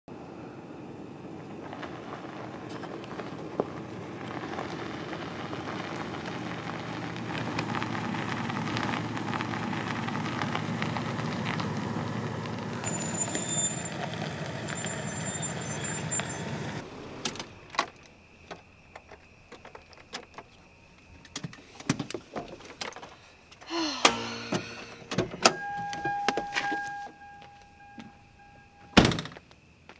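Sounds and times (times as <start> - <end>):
car engine and tyre noise: 0.1 - 29.9
high squeaks: 12.8 - 16.8
faint steady tone: 23.7 - 29.2.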